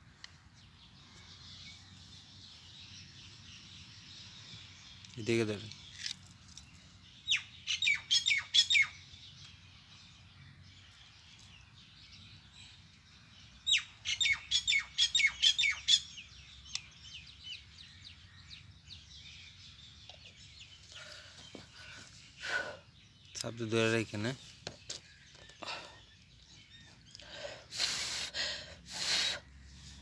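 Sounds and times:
bird calling: 0:07.3 - 0:09.1, 0:13.6 - 0:24.3.

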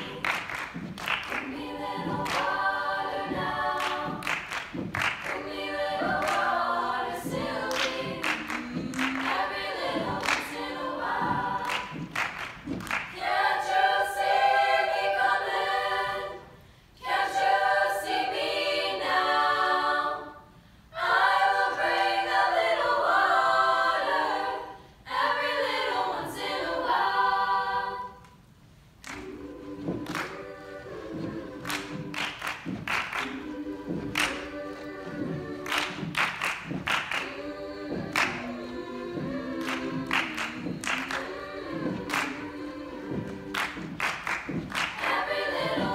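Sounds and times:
hand claps and chest pats: 0:00.0 - 0:13.2, 0:29.0 - 0:45.9
women's choir singing a cappella: 0:00.0 - 0:45.9.

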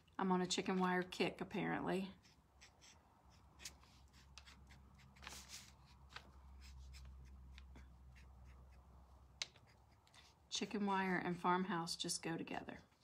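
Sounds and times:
paintbrush ticks and scratches: 0:06.6 - 0:10.4.

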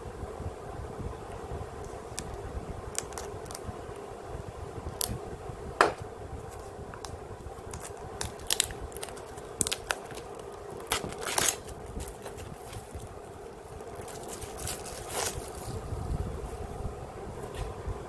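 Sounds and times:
steady low hum: 0:00.0 - 0:18.0
shrink wrap crackling: 0:01.8 - 0:03.7, 0:04.8 - 0:05.2, 0:05.8 - 0:16.6.

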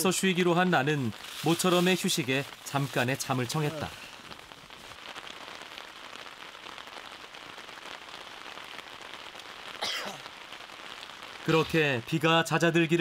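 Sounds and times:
steady rain falling: 0:00.0 - 0:13.0.

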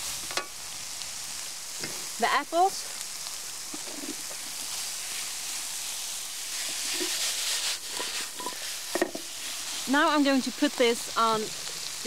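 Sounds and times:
food sizzling in a frying pan: 0:00.0 - 0:12.0
spatula scraping: 0:06.6 - 0:09.2.

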